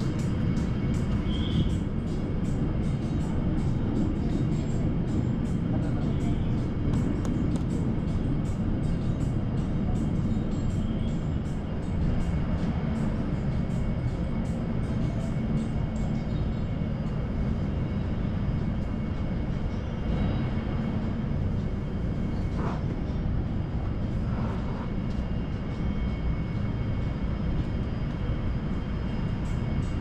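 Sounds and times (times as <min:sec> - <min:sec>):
air-handling rumble: 0:16.9 - 0:30.0.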